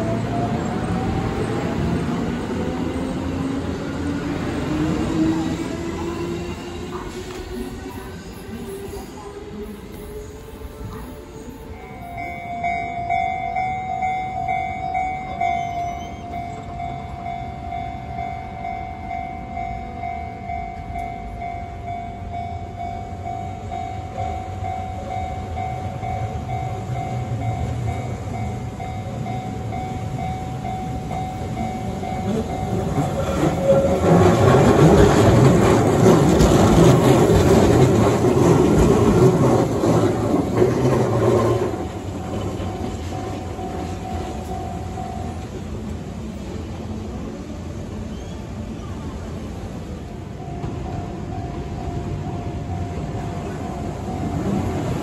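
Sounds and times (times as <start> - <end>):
train wheels and motors rumbling: 0.0 - 55.0
level-crossing warning bell ringing: 4.9 - 46.5, 49.2 - 55.0.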